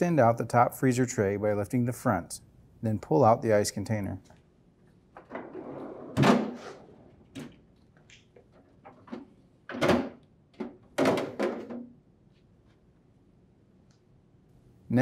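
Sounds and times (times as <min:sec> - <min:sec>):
plastic knocks and clatter: 0:07.3 - 0:12.0.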